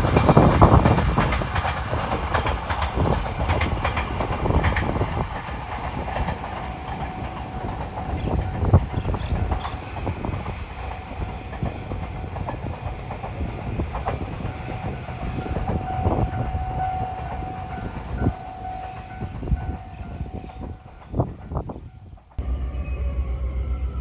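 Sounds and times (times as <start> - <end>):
train rumbling: 0.0 - 24.0
steady high tone: 14.3 - 21.0, 22.4 - 24.0.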